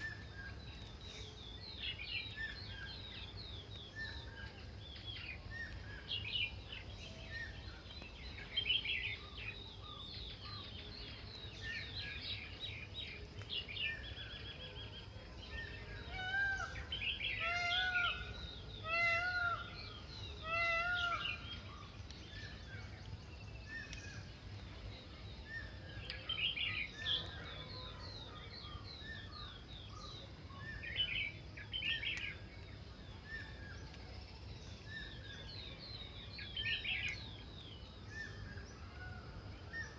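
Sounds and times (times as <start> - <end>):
birds chirping and trilling: 0.0 - 39.9.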